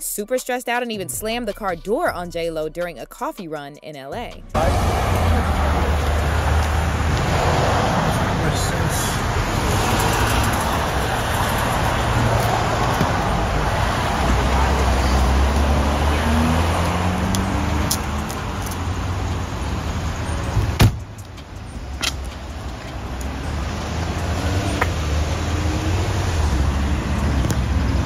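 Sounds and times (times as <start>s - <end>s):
street traffic: 0.0s - 28.0s
car door slamming: 20.6s - 21.1s.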